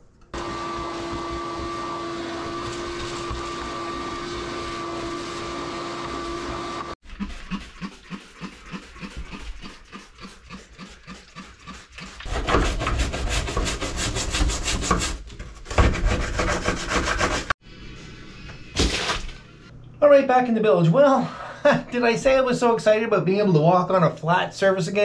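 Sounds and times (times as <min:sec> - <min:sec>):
shop vacuum running: 0:00.3 - 0:07.0
rubbing strokes on wood: 0:07.1 - 0:15.2.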